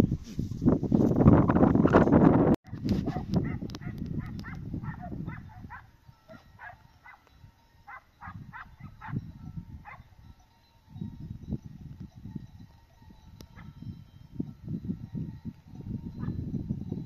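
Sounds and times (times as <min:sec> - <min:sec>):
dog yelping: 0:02.7 - 0:07.2, 0:07.9 - 0:09.2.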